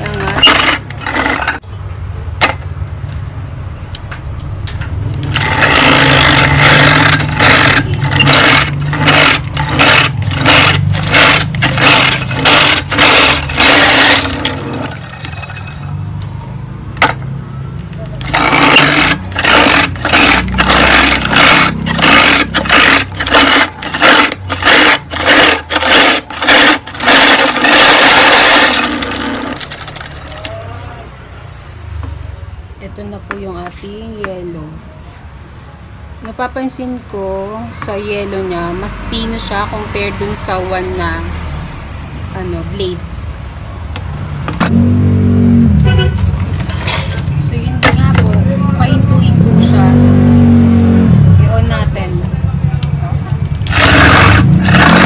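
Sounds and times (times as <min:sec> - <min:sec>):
ice crusher motor hum: 0:00.0 - 0:01.6, 0:05.1 - 0:16.0, 0:18.2 - 0:30.6, 0:53.5 - 0:55.0.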